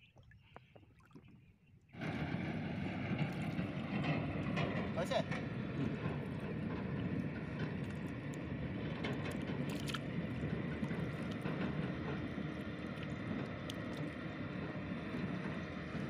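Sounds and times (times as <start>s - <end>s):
low rumble: 2.0s - 16.0s
water splashing and dripping: 5.8s - 16.0s.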